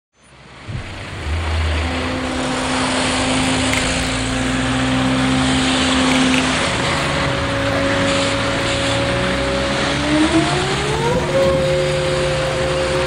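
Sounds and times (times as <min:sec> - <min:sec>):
street traffic noise: 0:00.2 - 0:13.0
nearby engine hum: 0:00.3 - 0:13.0.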